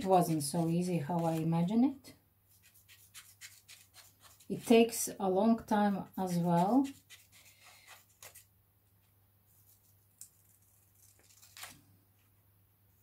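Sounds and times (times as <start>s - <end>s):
scissors snipping paper: 10.2s - 11.8s.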